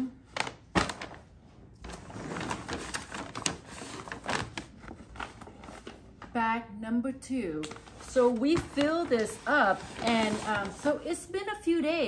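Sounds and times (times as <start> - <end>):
paper bag crinkling: 0.2 - 6.0, 7.6 - 11.0.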